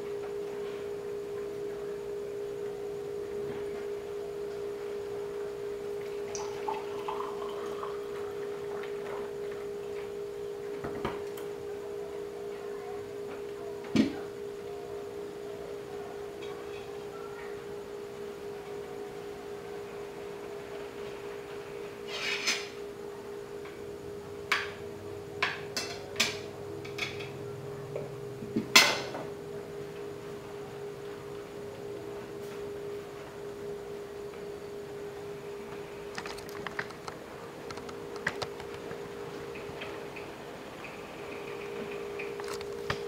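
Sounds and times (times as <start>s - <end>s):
steady low hum: 0.0s - 43.0s.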